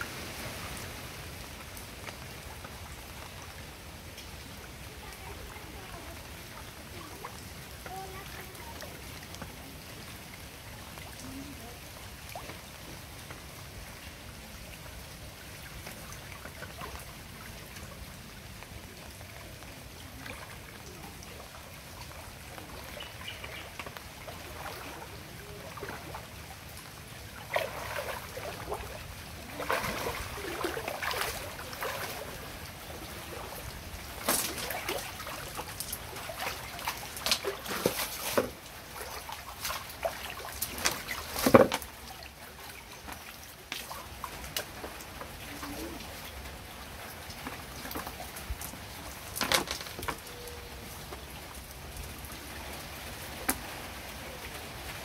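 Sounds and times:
irregular splashes: 0.0 - 55.0
water trickling and sloshing: 0.0 - 55.0
sharp knocks of wet net: 40.6 - 41.8.

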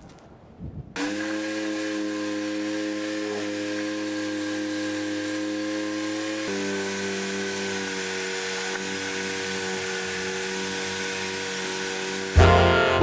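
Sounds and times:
orbital sander running: 1.0 - 13.0
background music: 12.4 - 13.0.

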